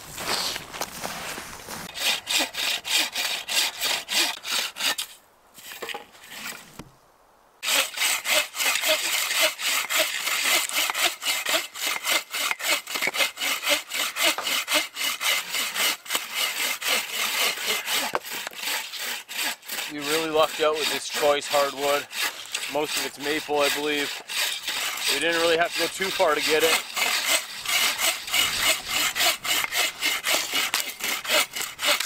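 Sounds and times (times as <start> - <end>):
bow saws cutting logs: 0.0 - 6.9, 7.6 - 32.0.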